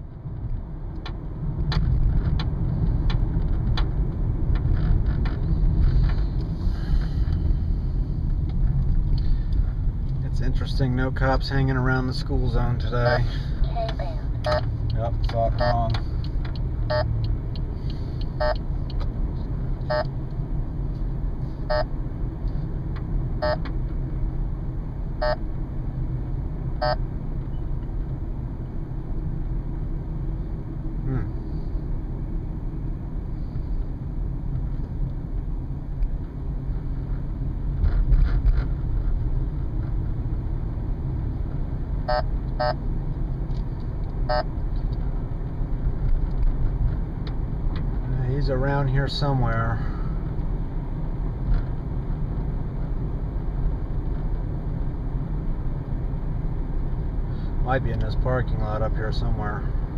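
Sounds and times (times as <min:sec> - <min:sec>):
car cabin road noise: 0:00.0 - 0:59.9
radar detector short beeps: 0:18.4 - 0:18.6, 0:19.9 - 0:20.1, 0:26.8 - 0:27.6, 0:42.1 - 0:42.8, 0:44.3 - 0:44.5.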